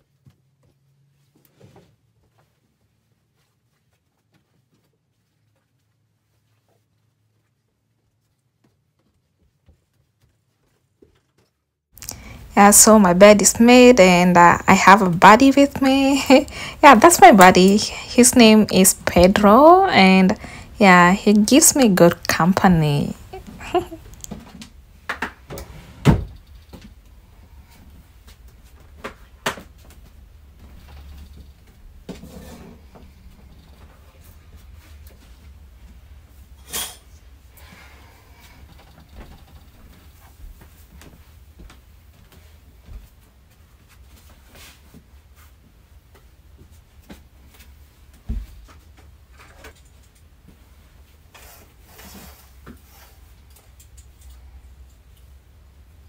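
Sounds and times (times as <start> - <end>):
low steady hum: 12.0 - 52.1.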